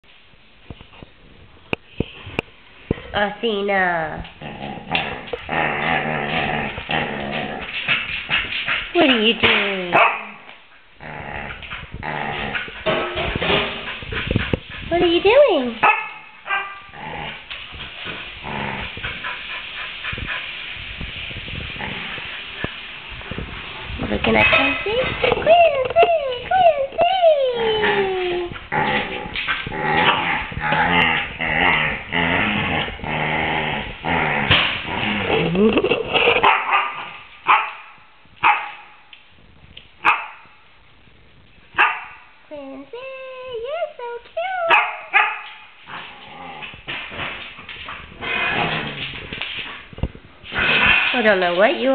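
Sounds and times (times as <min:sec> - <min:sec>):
dog growling: 0:04.2 - 0:09.0, 0:11.0 - 0:15.6, 0:16.9 - 0:20.3, 0:21.7 - 0:22.5, 0:24.2 - 0:36.4, 0:45.9 - 0:49.8
dog barking: 0:09.9 - 0:10.4, 0:15.8 - 0:16.9, 0:36.4 - 0:39.0, 0:40.0 - 0:40.5, 0:41.8 - 0:42.2, 0:44.7 - 0:45.6.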